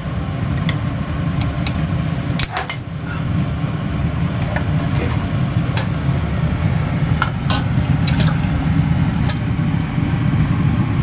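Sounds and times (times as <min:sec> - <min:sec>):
steady low hum: 0:00.0 - 0:11.0
broth pouring into pot: 0:06.3 - 0:09.6.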